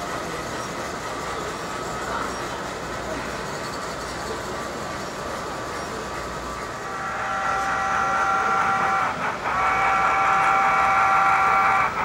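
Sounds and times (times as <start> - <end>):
model locomotive whistle blasts: 6.8 - 12.0.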